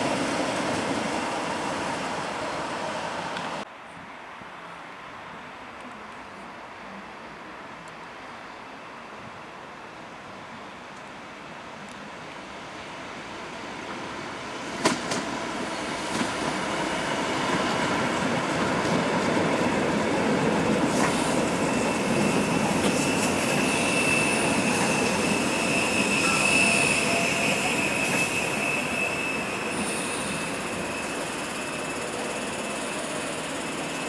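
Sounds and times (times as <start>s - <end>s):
electric train rumbling: 0.0s - 3.7s, 12.0s - 34.0s
wheel and brake squeal: 20.9s - 34.0s.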